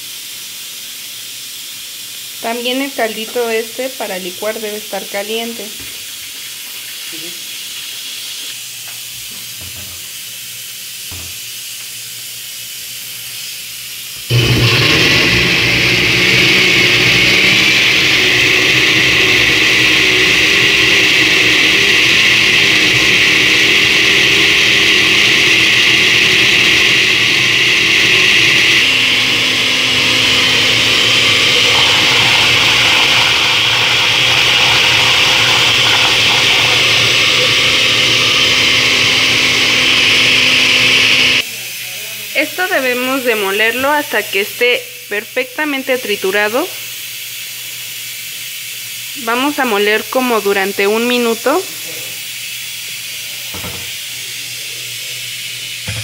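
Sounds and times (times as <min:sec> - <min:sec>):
blender motor running: 0:14.2 - 0:41.5, 0:42.2 - 0:56.0.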